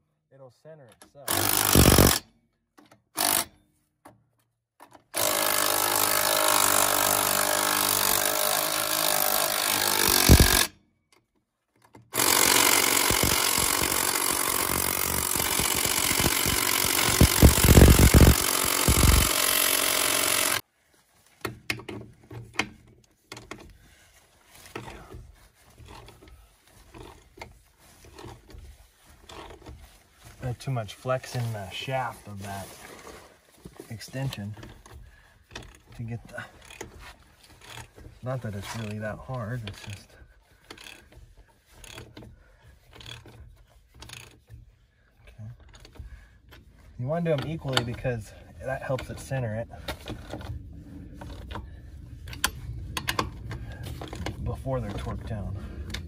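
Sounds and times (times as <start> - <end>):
power tool spinning lug nuts: 1.3 - 2.2, 3.2 - 3.5, 5.1 - 10.7, 12.1 - 20.6, 24.7 - 30.0, 34.3 - 46.7.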